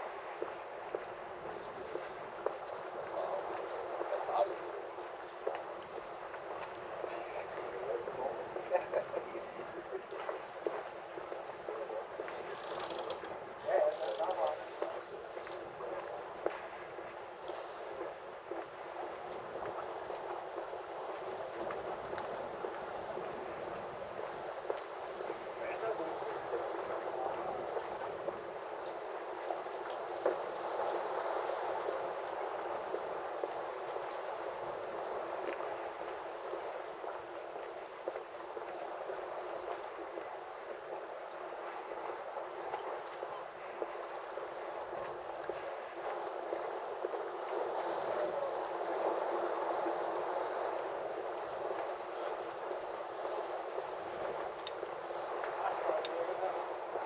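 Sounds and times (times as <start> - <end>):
water lapping and gurgling: 0.0 - 57.0
light knocks of boats: 0.4 - 31.2.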